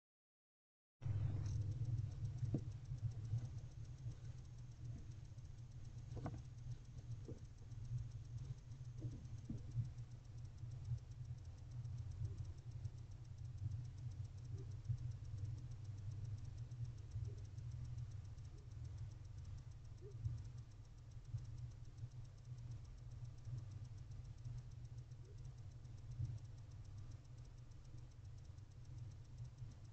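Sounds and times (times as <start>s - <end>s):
steady low hum: 1.0s - 29.9s
owl scratching and tapping: 1.2s - 10.1s.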